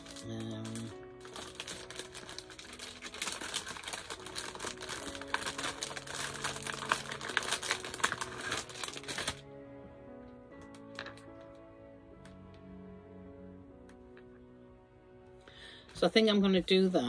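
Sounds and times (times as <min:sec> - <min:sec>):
plastic packet crinkling: 0:00.0 - 0:09.4.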